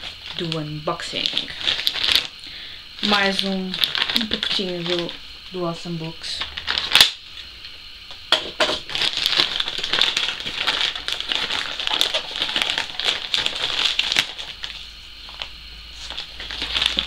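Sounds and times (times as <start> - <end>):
wrapping crinkling and tearing: 0.0 - 2.4, 3.0 - 5.2, 6.4 - 7.2, 8.8 - 17.0.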